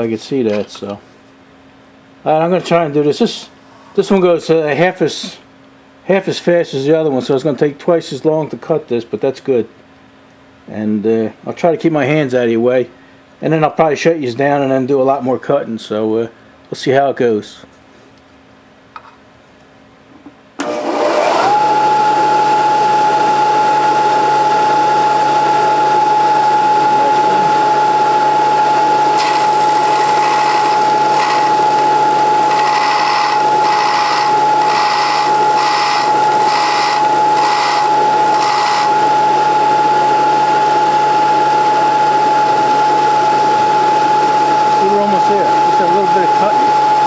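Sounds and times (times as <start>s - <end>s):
belt grinder motor whine: 20.6s - 47.0s
drill bit grinding on belt: 28.8s - 39.2s.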